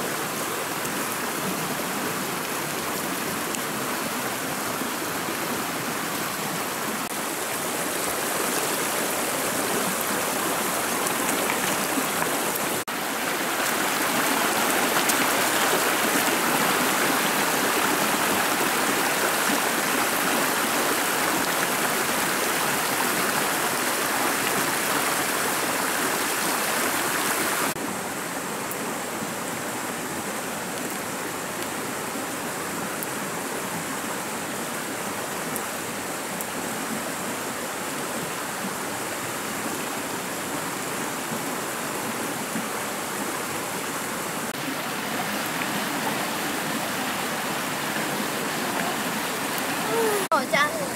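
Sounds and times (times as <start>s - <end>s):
water rushing over rocks: 0.0s - 50.9s.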